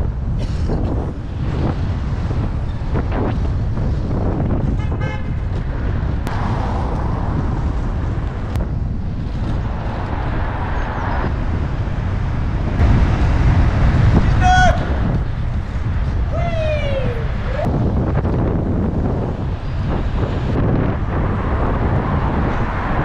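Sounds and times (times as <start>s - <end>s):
city traffic rumble: 0.0s - 23.0s
wind buffeting microphone: 0.0s - 23.0s.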